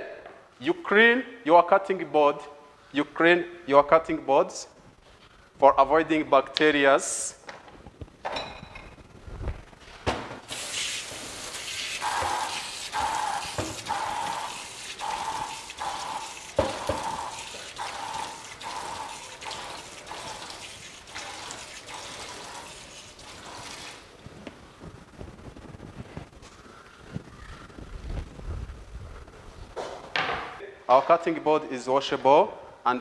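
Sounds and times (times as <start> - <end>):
tap running into a sink: 10.5 - 22.8.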